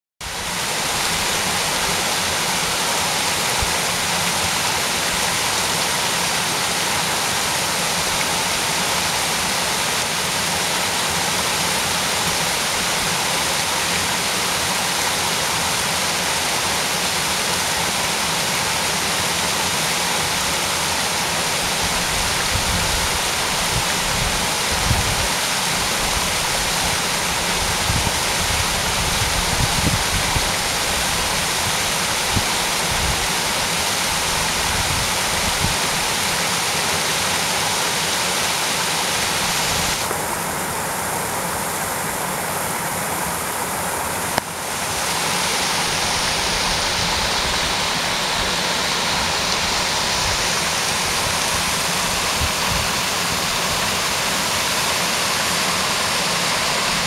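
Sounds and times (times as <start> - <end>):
waterfall splashing: 0.2 - 57.0.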